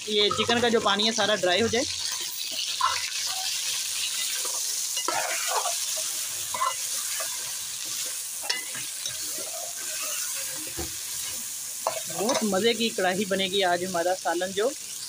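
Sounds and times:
chicken sizzling in a pan: 0.0s - 15.0s
metal ladle scraping a pan: 2.0s - 12.6s.

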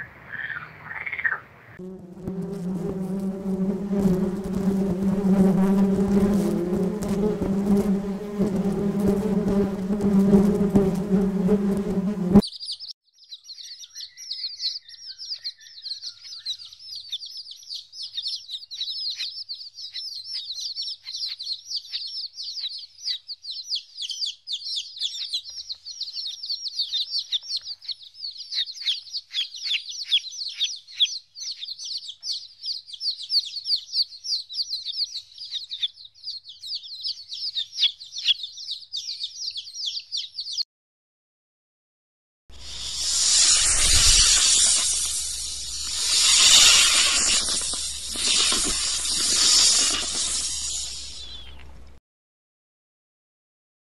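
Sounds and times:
bees buzzing: 1.8s - 12.4s, 42.5s - 51.5s
chicks peeping: 12.4s - 40.6s, 42.8s - 51.9s.

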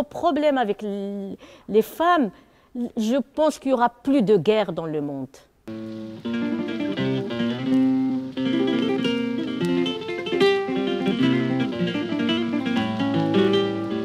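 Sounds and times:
acoustic guitar music: 5.7s - 14.0s.

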